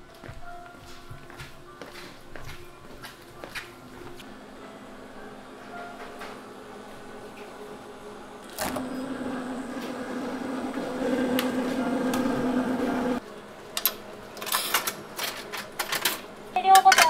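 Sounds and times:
refrigerator hum: 4.2s - 14.4s
coins clicking into slot: 14.4s - 16.2s.

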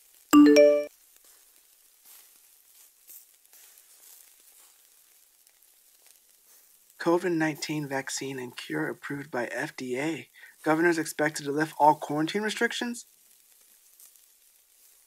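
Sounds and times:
food sizzling in a pan: 0.0s - 0.3s, 0.9s - 15.0s
short electronic alert chime: 0.4s - 0.9s.

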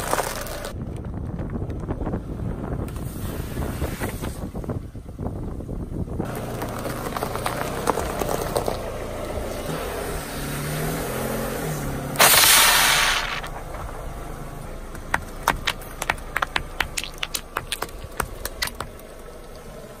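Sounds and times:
foam container bursting with hiss: 12.2s - 13.7s
detergent pods popping: 14.9s - 19.1s.

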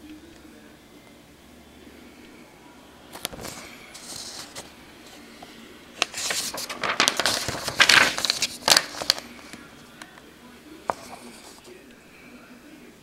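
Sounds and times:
paper sheets rustling: 3.1s - 10.0s, 10.8s - 11.7s.

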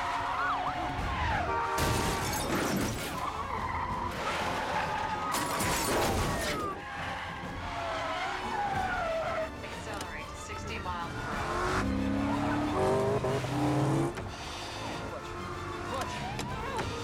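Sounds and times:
police sirens wailing: 0.0s - 2.4s, 3.1s - 17.0s
tyres skidding: 0.0s - 17.0s
cars colliding: 1.2s - 3.2s
glass shattering: 1.8s - 3.2s, 5.3s - 6.7s.

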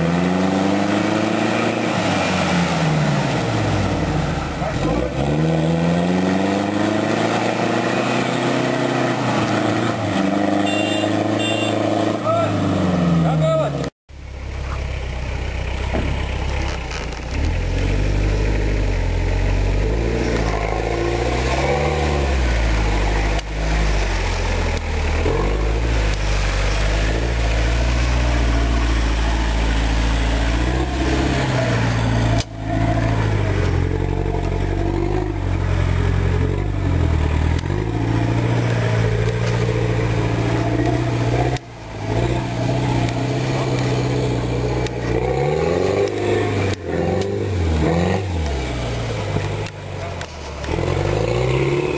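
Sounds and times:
truck engine revving: 0.0s - 51.9s.

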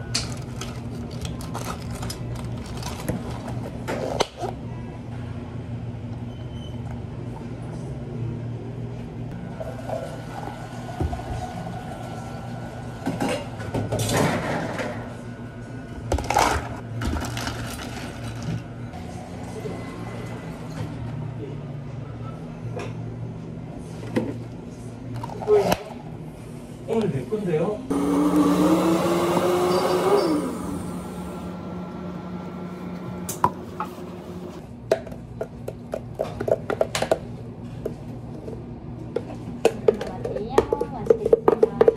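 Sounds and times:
blender motor whining: 27.9s - 34.6s.

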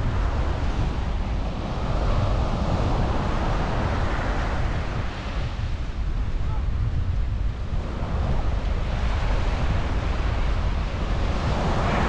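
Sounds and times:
wind rumbling on microphone: 0.0s - 12.0s
sea waves breaking on beach: 7.6s - 12.0s.

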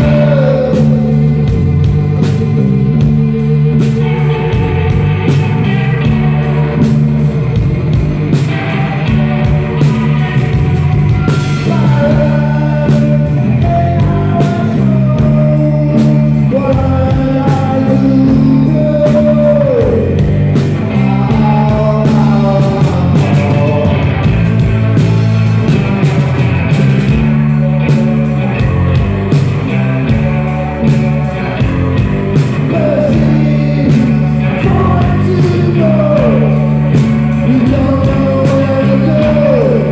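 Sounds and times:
man singing: 0.0s - 6.8s, 11.2s - 24.7s, 32.4s - 39.9s
rock band playing: 0.0s - 39.9s.

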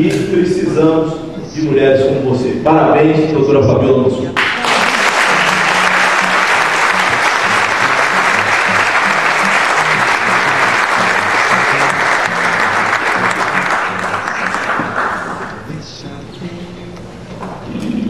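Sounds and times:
audience applauding: 4.4s - 15.7s
music playing low: 5.0s - 17.3s.

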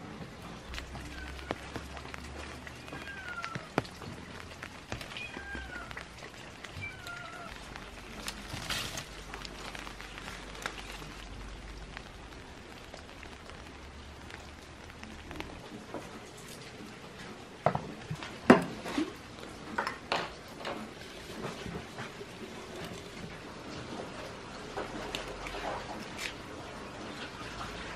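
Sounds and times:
light rain pattering: 0.0s - 27.9s
small ticks: 0.7s - 13.6s.

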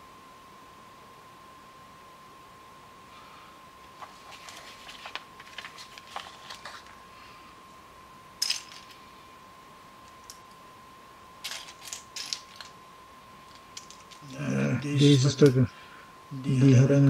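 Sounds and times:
plastic bricks clicking and clattering: 8.4s - 9.0s, 11.4s - 12.7s.

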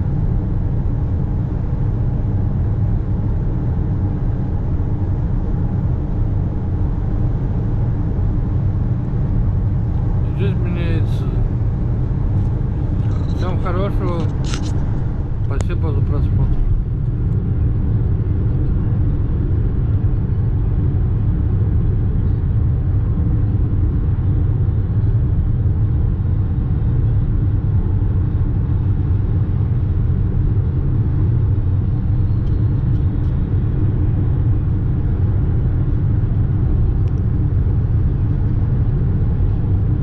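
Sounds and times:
car cabin road rumble: 9.0s - 17.4s.

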